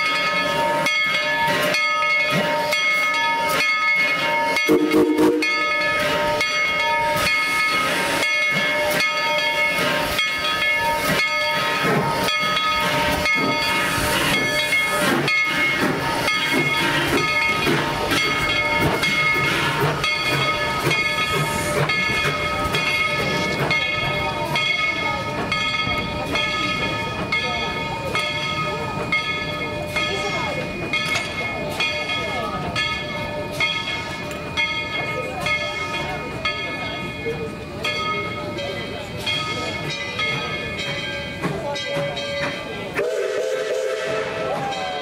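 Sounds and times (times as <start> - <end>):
steam hissing: 4.7 - 24.6, 42.9 - 45.0.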